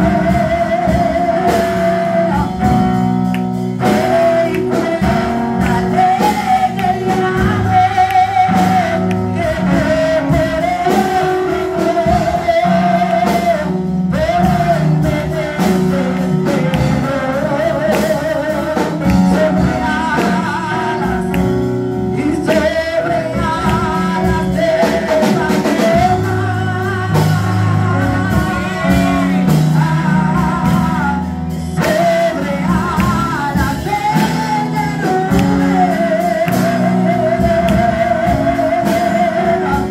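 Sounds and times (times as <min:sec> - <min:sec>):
electronic keyboard chords and bass: 0:00.0 - 0:39.9
woman singing into a microphone: 0:03.8 - 0:39.9.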